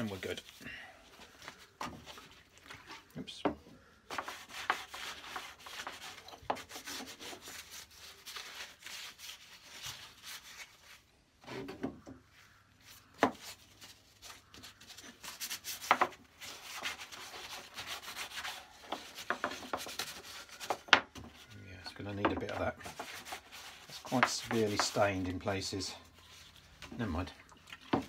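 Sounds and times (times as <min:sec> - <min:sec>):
cloth rubbing wood: 0:04.1 - 0:27.2.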